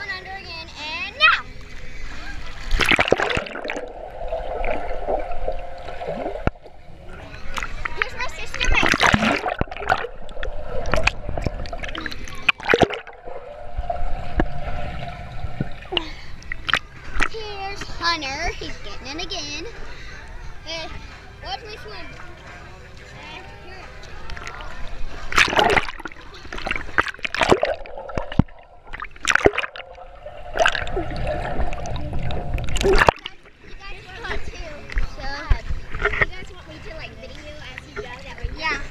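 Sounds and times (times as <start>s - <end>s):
water churning underwater: 1.3s - 18.8s, 24.2s - 38.9s.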